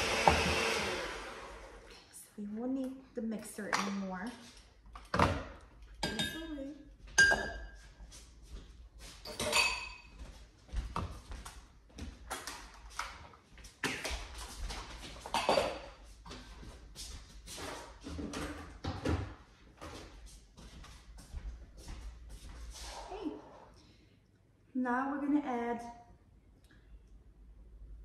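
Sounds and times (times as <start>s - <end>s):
ringing dish clink: 7.2s - 7.8s.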